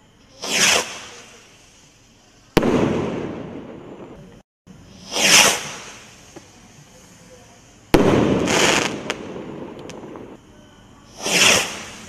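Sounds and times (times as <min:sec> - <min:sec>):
firework rocket bang: 0:00.4 - 0:01.4, 0:02.6 - 0:04.2, 0:04.9 - 0:06.2, 0:07.9 - 0:10.3, 0:11.2 - 0:12.0
rocket rushing whoosh: 0:04.9 - 0:06.2, 0:11.2 - 0:12.0.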